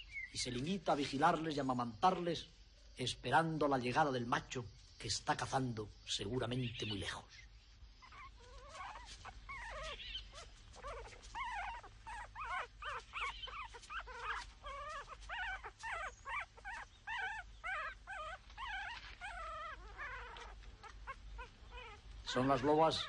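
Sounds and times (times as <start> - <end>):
wolf pups whimpering: 8.0 - 23.0.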